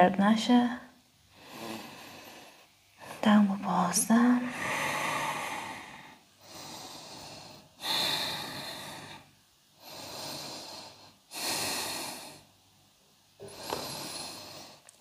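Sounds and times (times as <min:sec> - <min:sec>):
person breathing deeply: 0:01.3 - 0:03.2, 0:04.4 - 0:12.5, 0:13.4 - 0:14.9.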